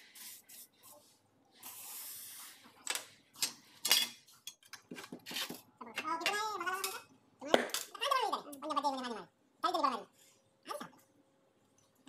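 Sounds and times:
gas torch flame hissing: 0:01.6 - 0:02.6.

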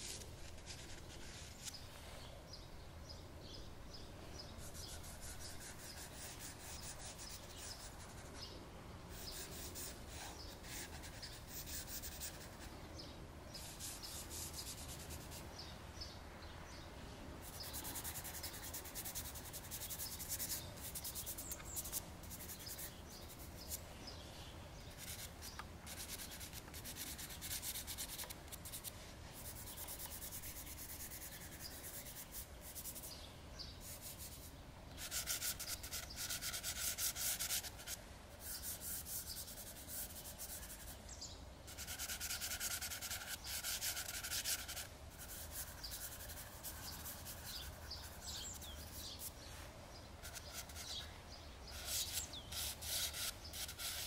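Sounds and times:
pastel scratching on paper: 0:04.6 - 0:08.5, 0:09.1 - 0:12.7, 0:17.4 - 0:23.8, 0:24.9 - 0:33.2, 0:33.8 - 0:41.0, 0:41.7 - 0:49.3, 0:50.2 - 0:51.1, 0:51.7 - 0:54.0
fingers rubbing paper: 0:41.8 - 0:49.2.

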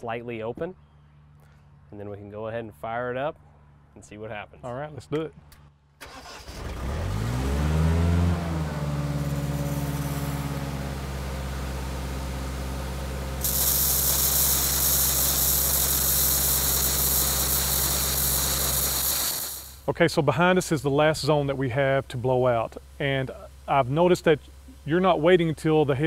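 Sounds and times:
air compressor engine running: 0:06.0 - 0:19.9
compressed air hissing from sprinkler: 0:13.4 - 0:19.9.

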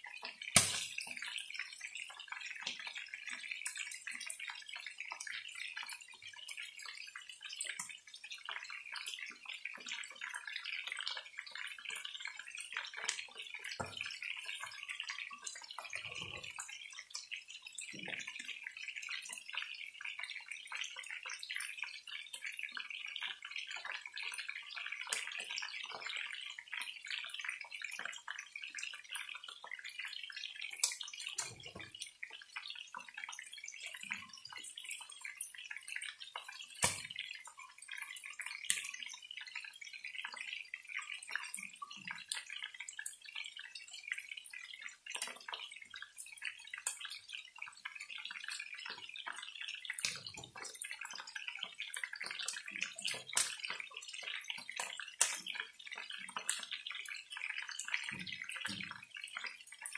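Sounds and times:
chicken sizzling in oil: 0:00.1 - 0:05.2.

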